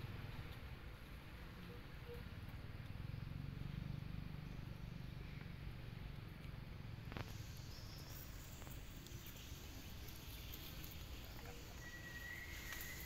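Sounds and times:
low rumble and hiss: 0.0 - 13.0
thin high whistle: 11.6 - 13.0.

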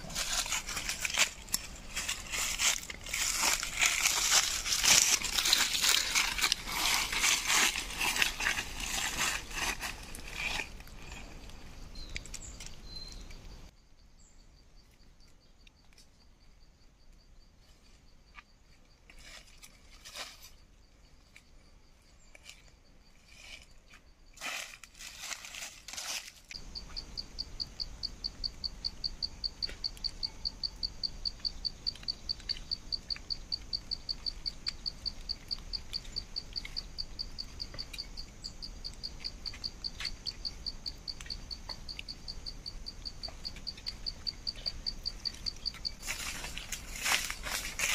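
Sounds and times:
rustles and crackles: 0.0 - 13.7, 18.7 - 20.7, 22.3 - 26.6, 43.2 - 47.9
insect chirping: 0.0 - 47.9.

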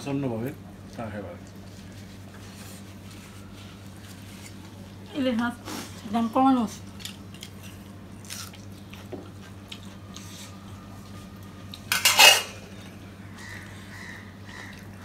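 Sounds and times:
low steady hum: 0.0 - 15.0
metal plates and bowls clinking: 11.9 - 12.7.

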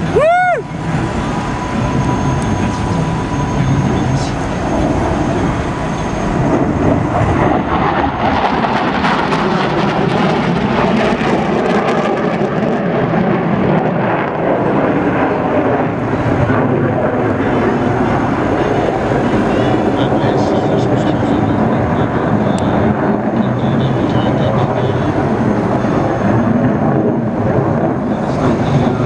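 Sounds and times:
jet afterburners roaring: 0.0 - 29.0.

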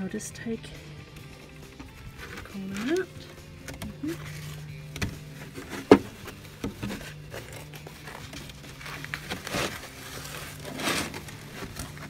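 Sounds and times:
mat scraping and rustling: 3.9 - 12.0.

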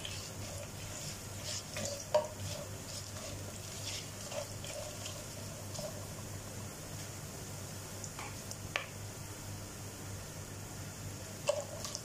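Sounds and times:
utensil scraping a pan: 0.0 - 6.1
light sizzle of oil: 0.0 - 12.0.

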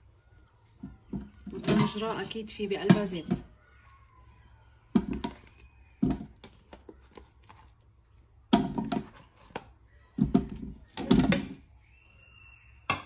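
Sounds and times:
potato slices thudding into metal pot: 4.9 - 7.0, 8.5 - 11.6.

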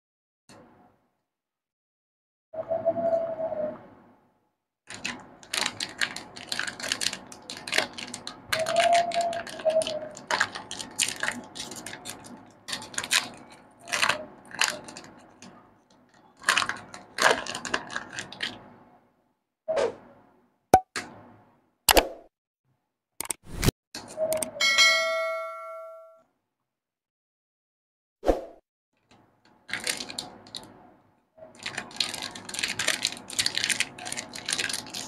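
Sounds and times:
foil snack wrapper crinkling: 4.9 - 18.6, 29.5 - 30.7, 31.5 - 35.0.

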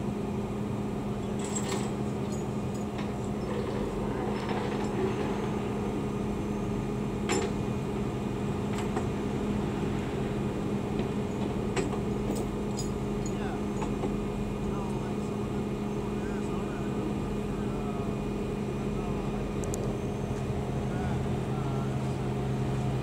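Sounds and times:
steady mechanical hum: 0.0 - 23.0.

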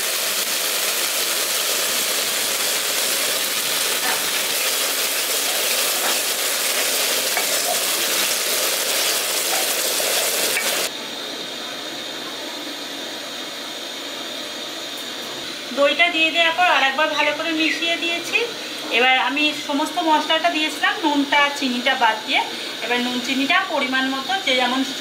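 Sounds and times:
paste sizzling in a pan: 0.0 - 10.9.

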